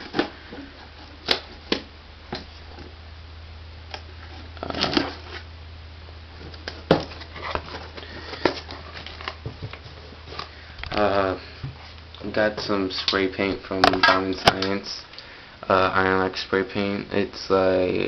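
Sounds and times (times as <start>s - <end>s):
cardboard rustling: 0.0s - 3.0s, 4.2s - 5.5s, 6.4s - 13.0s
cardboard box being opened: 6.6s - 10.5s.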